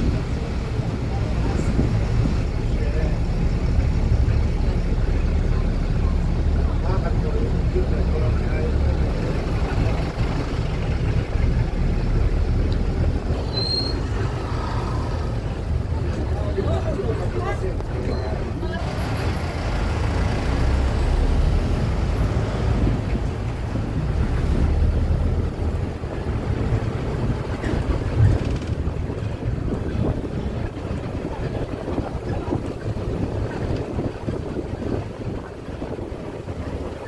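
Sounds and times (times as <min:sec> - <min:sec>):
wind buffeting the microphone: 0:00.0 - 0:13.4, 0:21.8 - 0:37.0
low vehicle engine rumble: 0:00.0 - 0:37.0
street traffic noise: 0:00.0 - 0:37.0.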